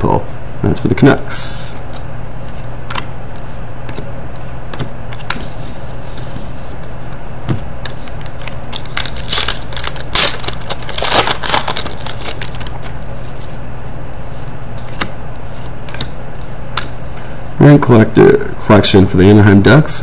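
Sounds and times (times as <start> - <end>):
steady low hum: 0.0 - 20.0
foil wrapper crinkling and tearing: 7.9 - 12.9.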